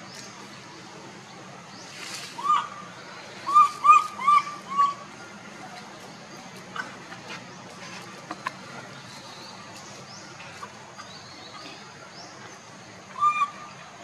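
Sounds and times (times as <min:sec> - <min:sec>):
birds chirping: 0:00.0 - 0:14.0
loud high-pitched bird call: 0:02.3 - 0:05.1, 0:13.1 - 0:13.9.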